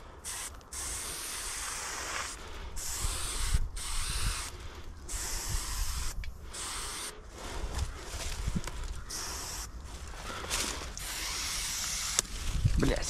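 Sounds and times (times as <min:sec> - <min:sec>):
spray paint can hissing: 0:00.2 - 0:07.2, 0:09.1 - 0:09.7, 0:11.0 - 0:12.3.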